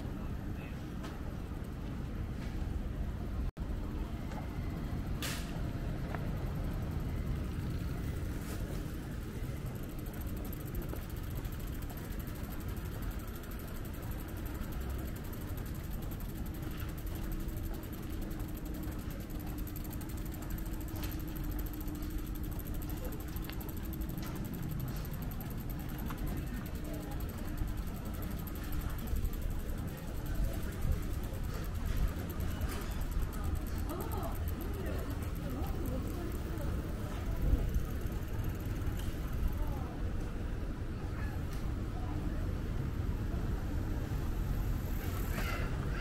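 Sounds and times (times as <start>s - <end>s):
faint steady hum: 0.0s - 46.0s.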